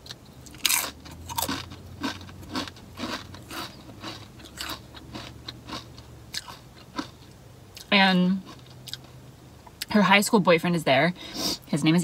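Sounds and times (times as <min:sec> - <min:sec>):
crunchy chewing of chip: 0:00.0 - 0:09.2.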